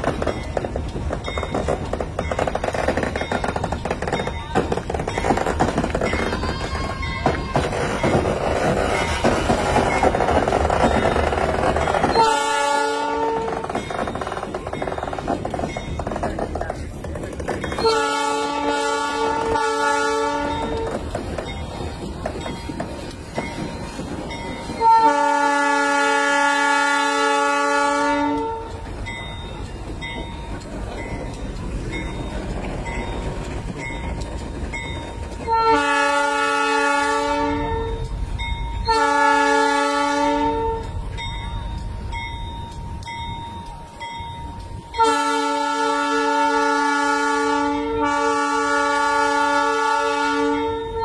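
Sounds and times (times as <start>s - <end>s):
locomotive low rumble: 0.0s - 51.0s
locomotive air horn blasts: 12.1s - 13.8s, 17.8s - 21.1s, 24.8s - 28.8s, 35.5s - 38.1s, 38.9s - 41.0s, 45.0s - 51.0s.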